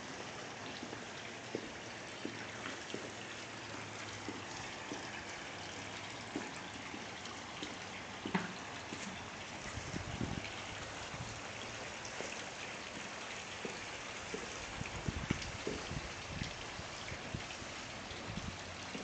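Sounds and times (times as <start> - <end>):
footsteps on concrete: 0.8 - 5.4, 6.3 - 9.2, 12.2 - 14.6.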